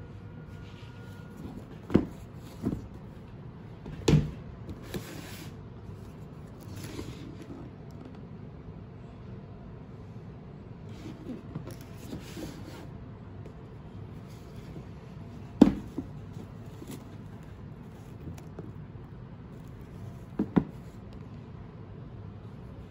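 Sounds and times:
sharp knocks on shoe box: 15.6s - 16.2s.

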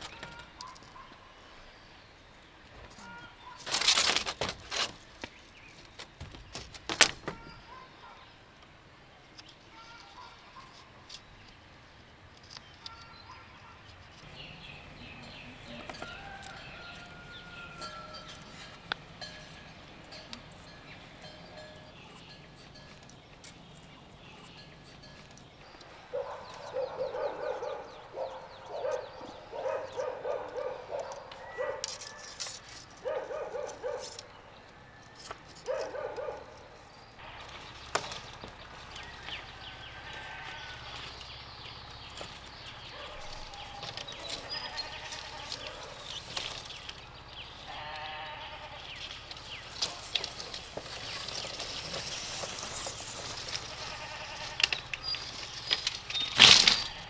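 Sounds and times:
outdoor background: 0.0s - 57.0s
farm animal calling: 2.7s - 3.8s, 12.8s - 32.2s, 37.2s - 57.0s.

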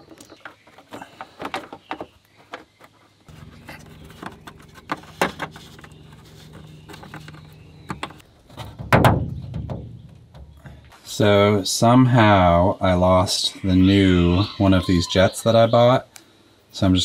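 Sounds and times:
plastic parts clicking and knocking: 0.0s - 3.0s
steady low hum: 3.3s - 8.4s.

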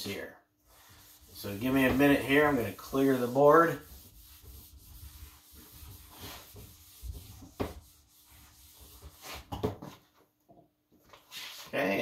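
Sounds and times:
eraser scrubbing whiteboard: 0.6s - 9.5s.

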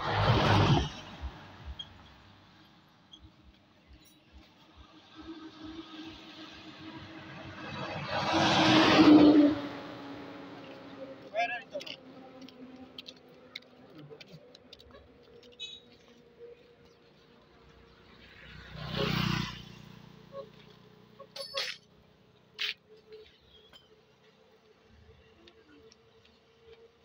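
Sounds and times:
vehicle driving past: 3.8s - 11.3s, 17.3s - 21.2s.

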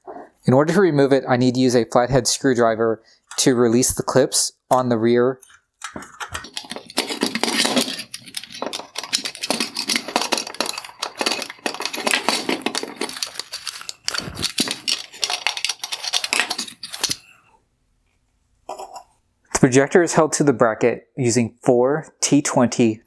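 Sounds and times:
plastic and metal parts rattling: 5.4s - 17.4s.

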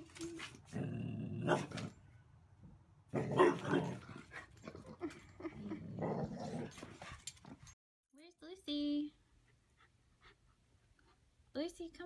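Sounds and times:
dog barking and growling: 0.7s - 2.0s, 3.1s - 7.8s.

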